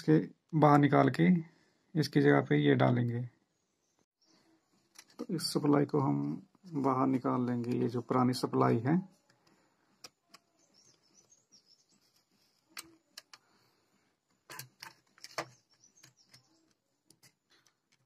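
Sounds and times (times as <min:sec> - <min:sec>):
clicks of handling connectors: 0:04.9 - 0:05.3, 0:09.2 - 0:11.2, 0:12.6 - 0:13.5, 0:14.2 - 0:18.0.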